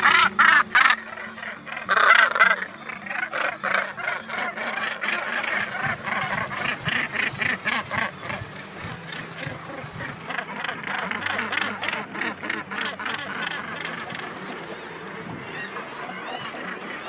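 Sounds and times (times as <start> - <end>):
seabirds harsh grating calls: 5.5 - 10.3.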